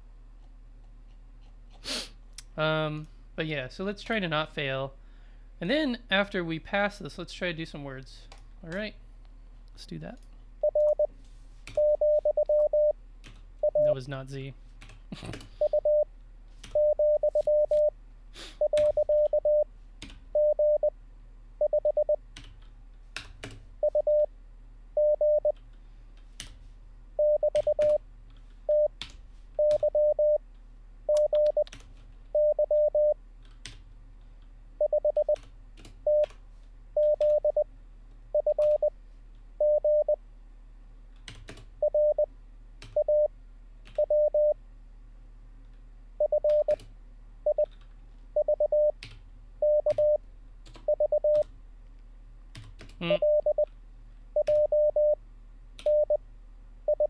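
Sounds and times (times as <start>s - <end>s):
morse code tone: 10.6s - 11.1s, 11.8s - 13.0s, 13.6s - 14.0s, 15.6s - 16.1s, 16.8s - 17.9s, 18.6s - 19.7s, 20.4s - 20.9s, 21.6s - 22.2s, 23.8s - 24.3s, 25.0s - 25.5s, 27.2s - 28.0s, 28.7s - 28.9s, 29.6s - 30.4s, 31.1s - 31.7s, 32.4s - 33.2s, 34.8s - 35.4s, 37.0s - 37.6s, 38.4s - 38.9s, 39.6s - 40.2s, 41.8s - 42.3s, 43.0s - 43.3s, 44.0s - 44.6s, 46.2s - 46.8s, 48.4s - 48.9s, 49.6s - 50.2s, 50.9s - 51.4s, 53.1s - 53.6s, 54.4s - 55.2s, 55.9s - 56.2s
computer keyboard keystrokes: 31.2s - 31.9s, 41.2s - 41.7s, 52.5s - 53.0s.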